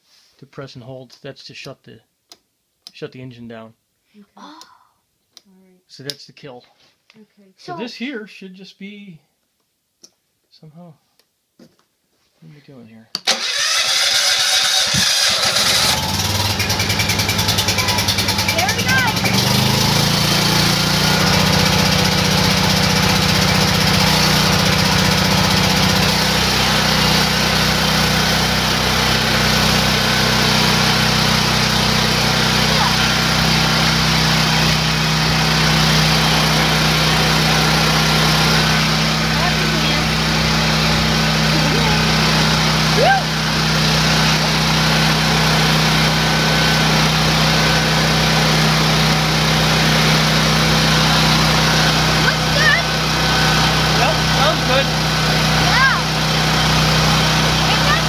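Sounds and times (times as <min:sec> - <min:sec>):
generator engine running: 0:13.2 - 0:58.0.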